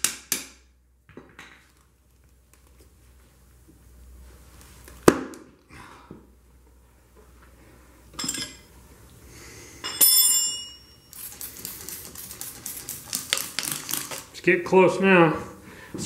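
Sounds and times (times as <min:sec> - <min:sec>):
ringing metal clang: 0:09.8 - 0:11.1.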